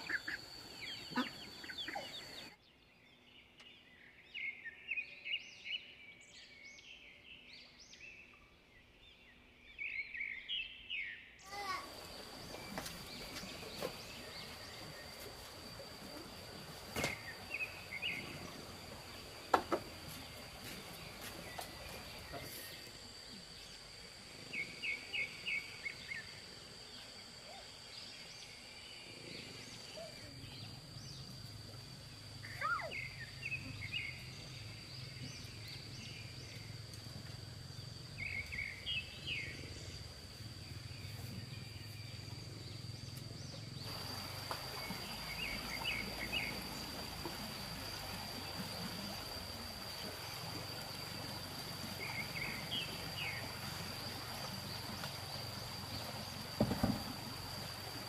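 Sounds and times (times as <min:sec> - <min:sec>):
birds chirping: 0:00.0 - 0:06.8, 0:07.4 - 0:23.8.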